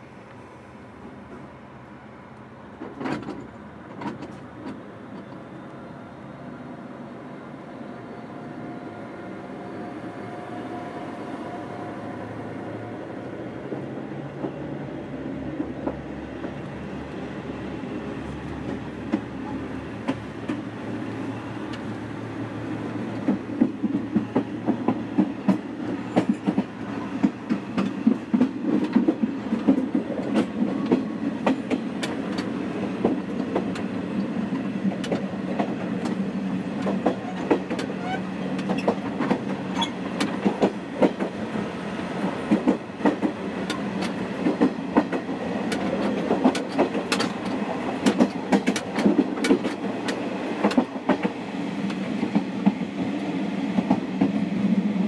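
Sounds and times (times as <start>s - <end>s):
diesel train engine: 0.0s - 55.0s
rail-joint clacks: 2.8s - 5.5s, 18.3s - 20.7s, 23.1s - 41.6s, 42.2s - 54.9s.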